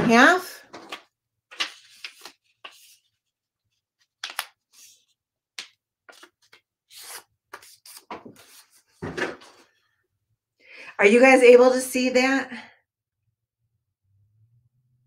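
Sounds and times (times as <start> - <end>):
paper rustling and crinkling: 0.7 - 9.8.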